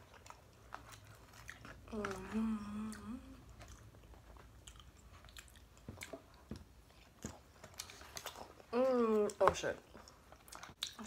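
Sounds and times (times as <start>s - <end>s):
chewing and mouth sounds: 0.0s - 11.0s
person humming: 1.9s - 3.5s.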